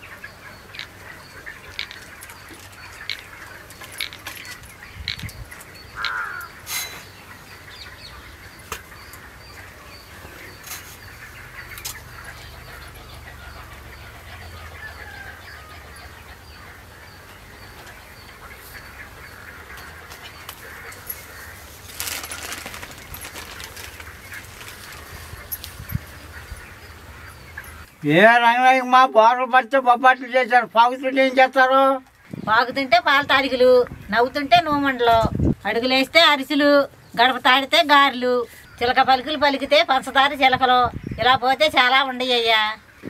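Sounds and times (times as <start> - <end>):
birds chirping: 0.0 - 43.0
paper rustling: 21.2 - 25.4.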